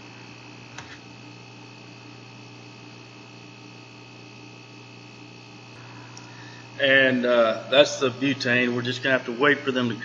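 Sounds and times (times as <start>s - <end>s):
electrical hum: 0.0s - 10.0s
faint high whine: 5.0s - 10.0s.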